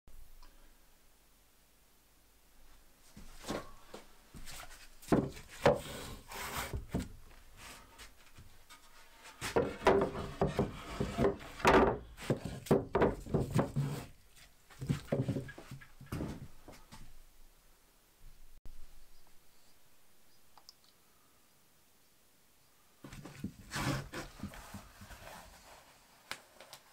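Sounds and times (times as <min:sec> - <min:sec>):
wood knocking on wood: 0:09.5 - 0:14.0.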